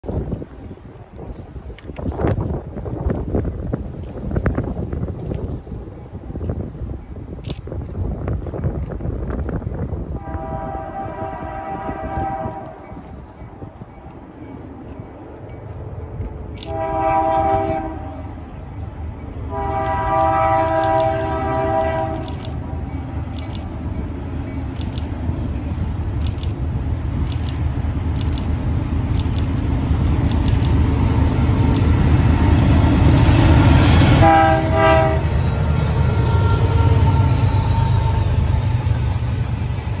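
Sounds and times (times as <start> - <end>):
rumble of train cars rolling: 0.0 - 40.0
train horn blasts: 10.2 - 13.0, 16.6 - 18.4, 19.5 - 23.2, 33.5 - 39.2
sharp clicks: 19.3 - 23.7, 24.7 - 25.2, 26.1 - 26.6, 27.2 - 31.0, 31.6 - 33.4.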